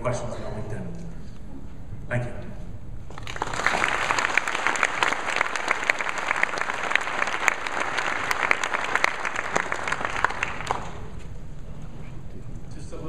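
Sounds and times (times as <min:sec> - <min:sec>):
audience applauding: 0:03.1 - 0:11.2.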